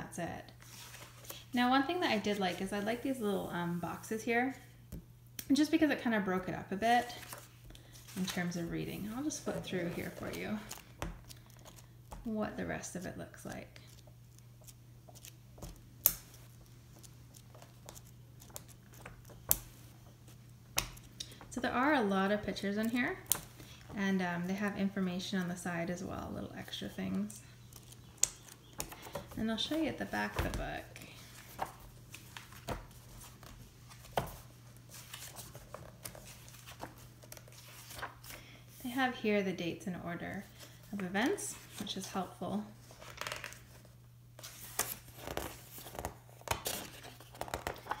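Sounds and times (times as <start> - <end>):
book pages flipping: 0.6 - 1.5, 7.0 - 12.3, 13.8 - 21.4, 27.1 - 38.4, 42.8 - 48.0.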